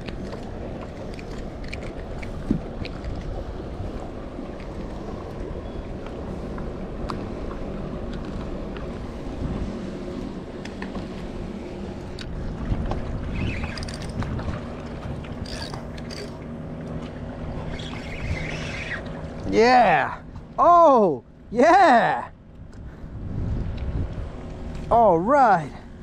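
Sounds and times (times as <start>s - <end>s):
wind rumbling on microphone: 0.0s - 20.6s, 22.2s - 26.0s
water lapping around kayak: 0.0s - 26.0s.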